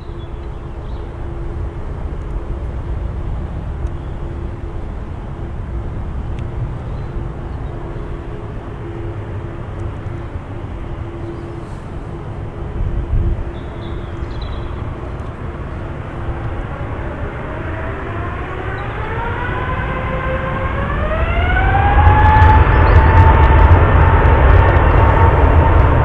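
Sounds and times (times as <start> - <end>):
faint constant hum: 0.0 - 19.2
jet engines low rumble: 0.0 - 26.0.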